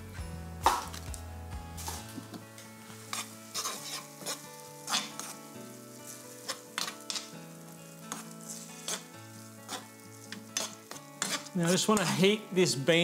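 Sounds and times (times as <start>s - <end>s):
food sizzling: 0.6s - 13.0s
spoon scraping frying pan: 3.0s - 12.4s.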